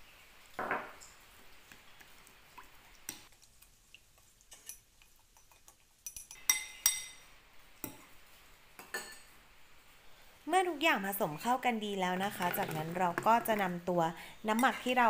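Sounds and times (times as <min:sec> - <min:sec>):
spoon clinking against glass: 0:05.4 - 0:07.2.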